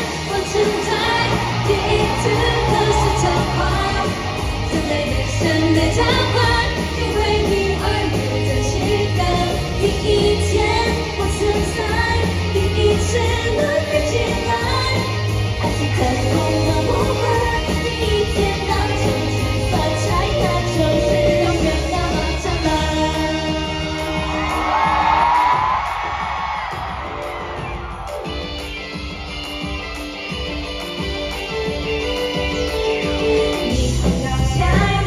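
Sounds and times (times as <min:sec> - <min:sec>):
women singing into microphones: 0:00.0 - 0:24.4, 0:33.6 - 0:35.0
pop backing track with bass beat: 0:00.0 - 0:35.0.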